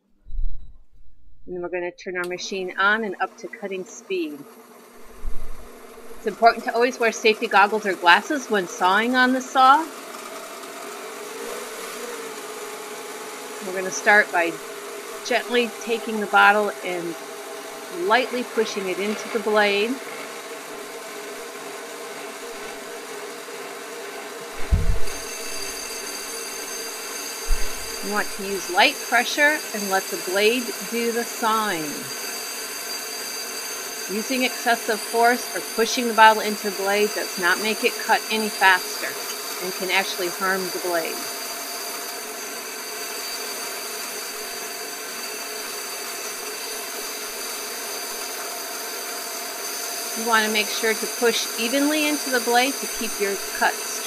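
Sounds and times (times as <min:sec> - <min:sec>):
short low thump: 0:00.3 - 0:01.5, 0:05.0 - 0:06.3, 0:24.6 - 0:25.7, 0:27.5 - 0:28.0
band saw running: 0:02.5 - 0:54.0
blade grinding glass whine: 0:04.5 - 0:54.0.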